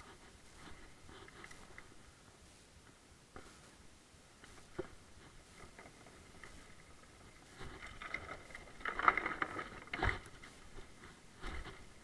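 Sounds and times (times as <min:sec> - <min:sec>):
mountain bike rattling over trail: 0:04.4 - 0:12.0.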